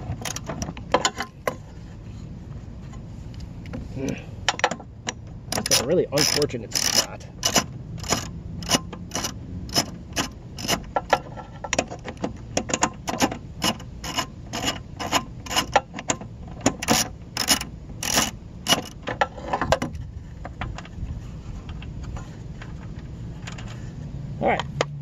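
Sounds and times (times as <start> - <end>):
ratchet wrench clicking: 5.1 - 11.2, 12.6 - 15.9, 16.7 - 19.0.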